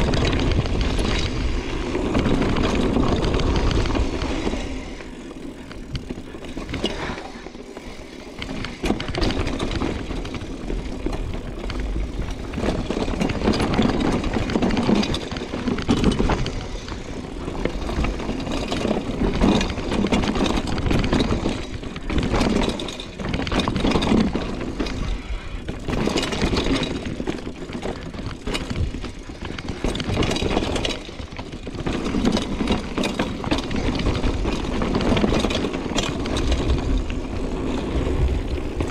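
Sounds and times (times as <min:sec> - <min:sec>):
wind rumble on microphone: 0:00.0 - 0:05.1, 0:08.4 - 0:38.9
bike tyres rattling over bumps: 0:00.0 - 0:38.9.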